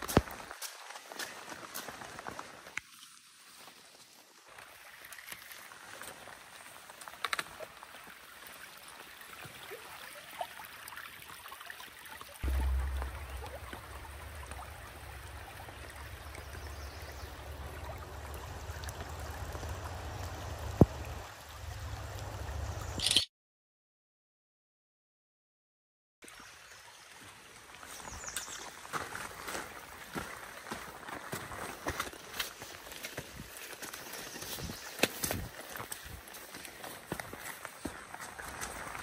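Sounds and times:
running water rushing: 0.0 - 23.0, 26.2 - 39.0
low rumble: 12.4 - 22.9.

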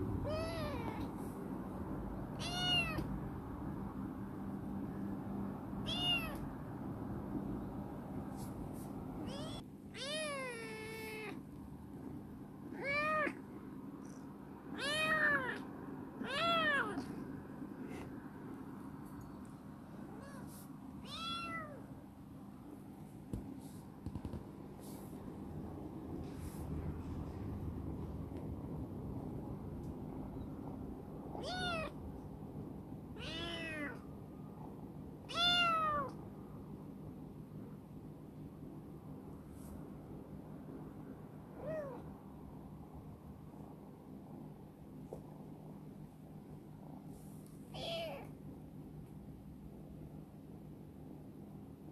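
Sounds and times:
kitten meowing: 0.2 - 1.1, 2.4 - 3.1, 5.8 - 6.4, 9.2 - 11.4, 20.1 - 21.8, 31.4 - 32.0, 35.3 - 36.1, 47.8 - 48.3.

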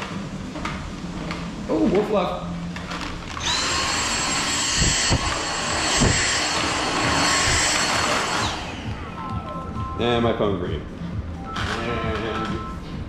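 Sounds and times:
stick vacuum whining: 2.9 - 9.3.

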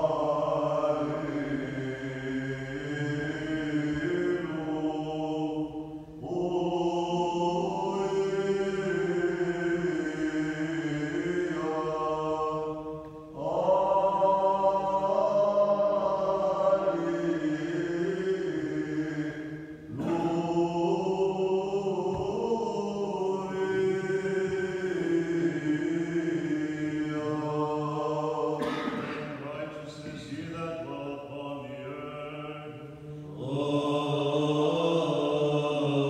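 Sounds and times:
men chanting melody: 0.0 - 36.0.

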